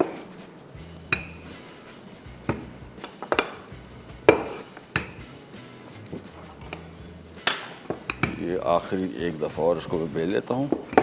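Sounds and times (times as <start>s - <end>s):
rolling pin knocking on board: 2.4s - 3.6s, 4.2s - 5.2s.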